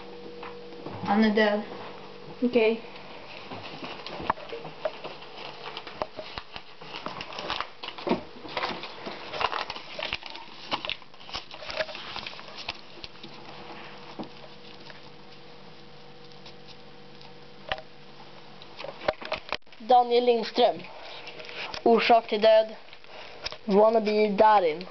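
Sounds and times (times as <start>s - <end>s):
faint steady hum: 0.0s - 24.9s
paper crinkling and rustling: 3.4s - 16.8s.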